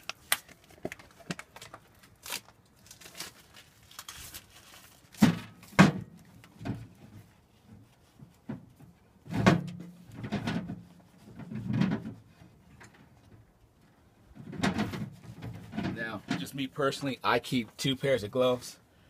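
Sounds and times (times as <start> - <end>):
clunks and knocks: 5.2 - 13.5, 14.3 - 17.1.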